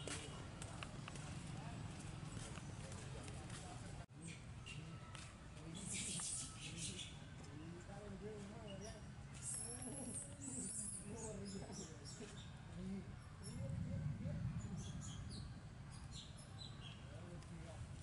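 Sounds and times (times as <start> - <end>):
low background murmur: 0.0 - 18.0
animal chirps and squeaky calls: 5.8 - 7.2, 8.7 - 12.5.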